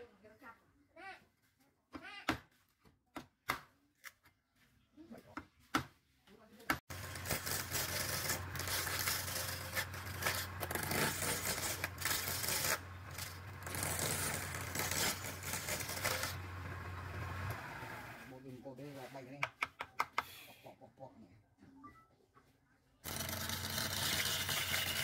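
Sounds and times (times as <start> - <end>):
chisel scraping spinning wood: 6.9 - 18.1, 23.0 - 25.0.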